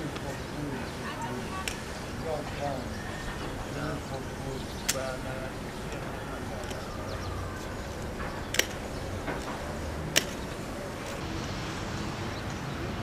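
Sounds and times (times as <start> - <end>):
low steady city rumble: 0.0 - 13.0
sharp clicks: 4.8 - 5.3, 8.0 - 11.2.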